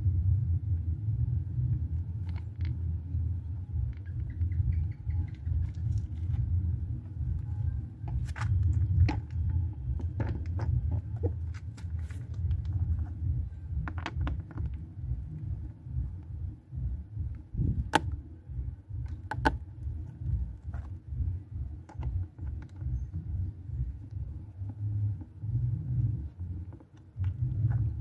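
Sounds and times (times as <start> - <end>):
steady low rumble: 0.0 - 28.0
sharp plastic snaps: 17.8 - 18.2
plastic clicks and knocks: 19.1 - 19.6.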